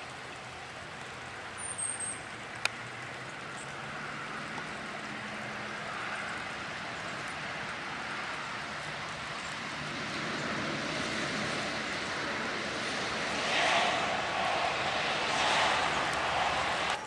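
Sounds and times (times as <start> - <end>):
storm wind through trees: 4.9 - 17.0.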